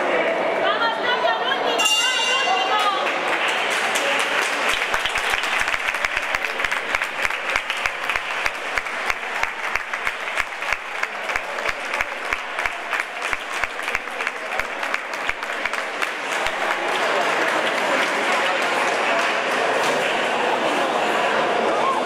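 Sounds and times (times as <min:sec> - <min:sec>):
crowd voices humming: 0:00.0 - 0:22.0
hand claps: 0:02.8 - 0:20.3.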